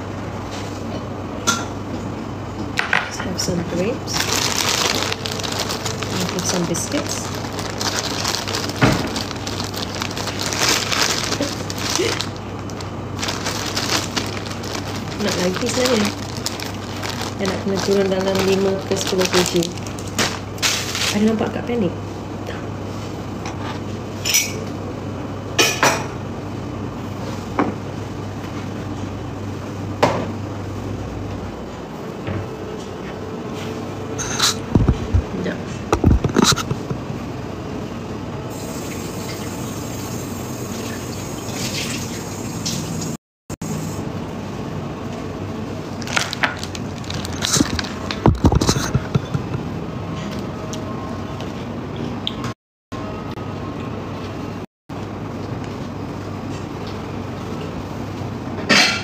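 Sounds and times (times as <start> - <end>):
steady background noise: 0.0 - 38.5
dishes clinking and knocking: 48.3 - 49.7.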